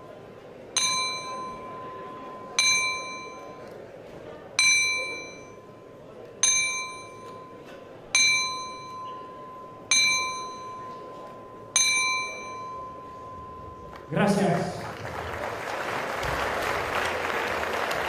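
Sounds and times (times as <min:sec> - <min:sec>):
boxing ring bell: 0:00.8 - 0:03.8, 0:04.6 - 0:14.1.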